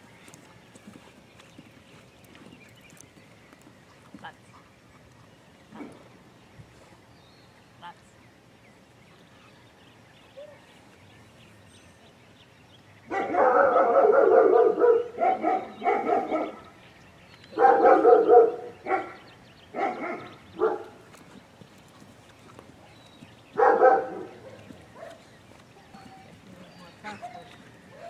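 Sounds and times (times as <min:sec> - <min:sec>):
dog barking: 0:13.1 - 0:16.6, 0:17.6 - 0:19.2, 0:19.8 - 0:20.9, 0:23.6 - 0:25.2.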